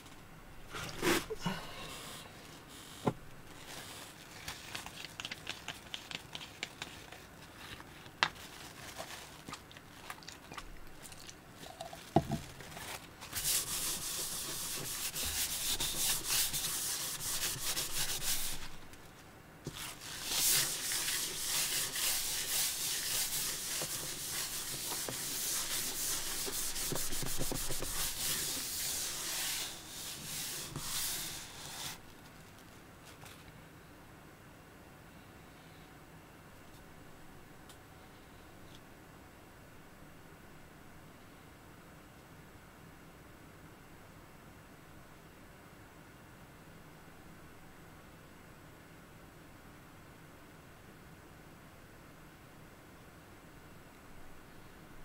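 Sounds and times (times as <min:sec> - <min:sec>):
tissue rubbing on wooden table: 0:13.3 - 0:18.9, 0:19.7 - 0:32.2.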